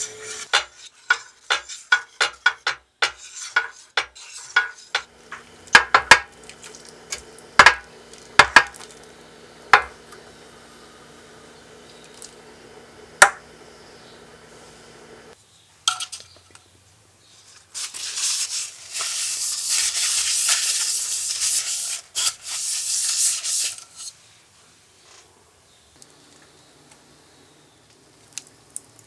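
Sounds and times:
brush scrubbing metal tin: 0.0 - 9.0, 17.7 - 24.2
whisk clacking against metal pot: 0.5 - 8.8
low steady hum: 5.1 - 15.4.

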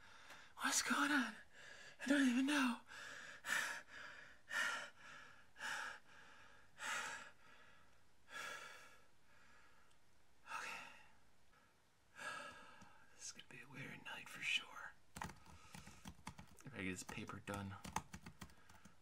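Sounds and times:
man breathing heavily: 0.0 - 0.6, 1.4 - 2.0, 2.8 - 13.2.

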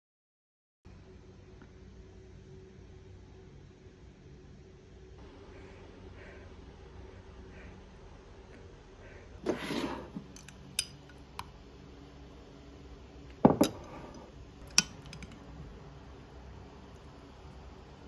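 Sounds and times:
spoon scraping a glass mug: 13.6 - 14.3.

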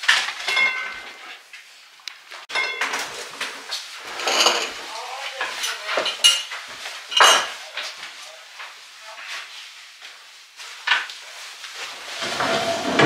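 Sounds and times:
cutlery and dishes clinking: 0.0 - 1.4, 2.5 - 7.9.

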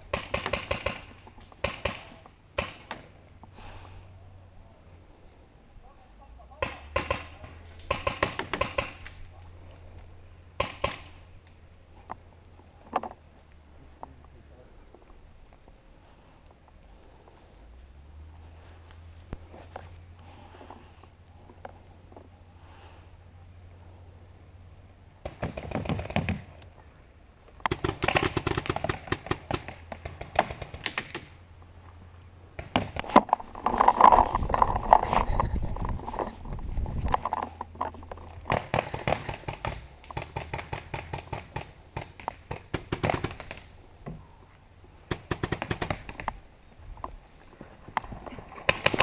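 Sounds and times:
rustling: 27.4 - 41.4
paintball marker firing: 27.7 - 31.4.

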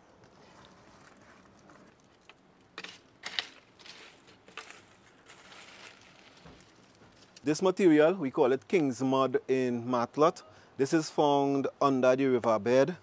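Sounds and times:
faint rustle: 0.0 - 7.5
leaves crackling in fire: 0.3 - 7.8.

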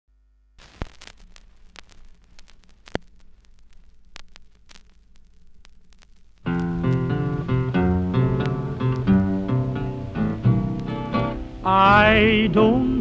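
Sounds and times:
faint hiss and hum: 0.1 - 13.0
film crackle with clicks and pops: 0.5 - 13.0
guitar music: 6.4 - 13.0.

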